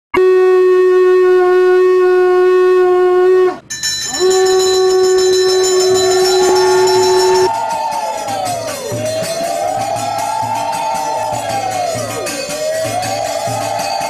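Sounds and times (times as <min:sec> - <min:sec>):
conch shell blasts: 0:00.2 - 0:14.0
higher tone: 0:03.3 - 0:07.6.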